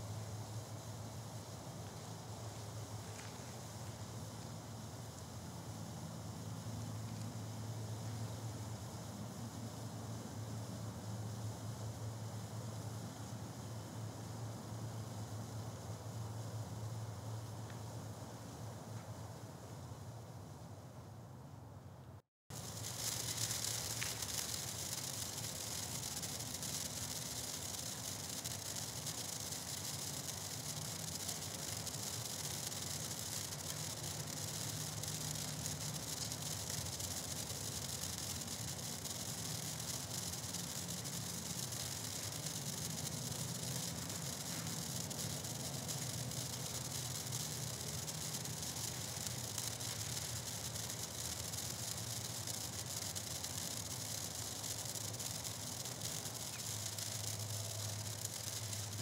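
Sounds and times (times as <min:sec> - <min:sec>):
sparkler fizzing hiss: 0:22.5 - 0:59.0.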